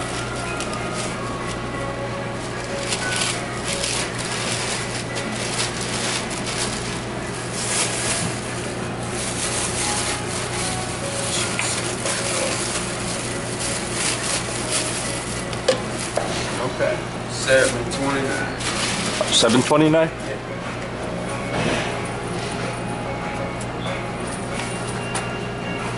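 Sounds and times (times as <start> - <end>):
paper and plastic bag rustling: 0.0 - 20.1.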